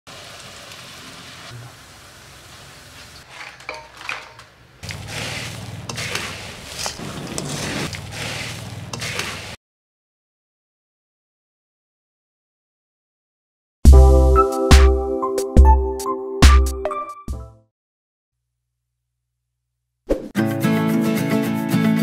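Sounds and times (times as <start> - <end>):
rice sizzling in hot oil: 0.1 - 3.5
utensil clinking on metal bowl: 3.4 - 4.5.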